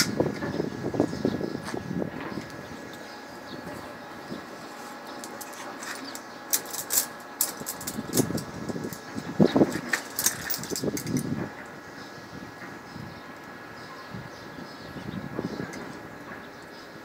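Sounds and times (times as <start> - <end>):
steady mechanical hum: 0.0 - 17.0
sharp clicks and rattles: 5.0 - 11.7.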